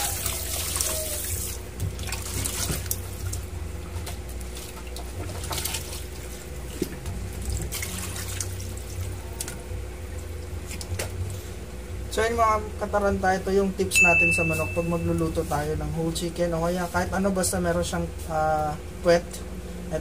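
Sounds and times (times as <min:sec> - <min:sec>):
water sloshing in plastic tub: 0:00.0 - 0:11.4.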